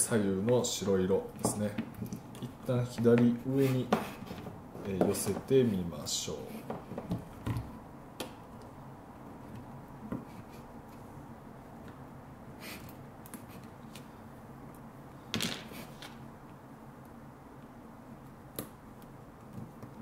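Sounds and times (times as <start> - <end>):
copper wires clicking and rustling: 0.0 - 5.7.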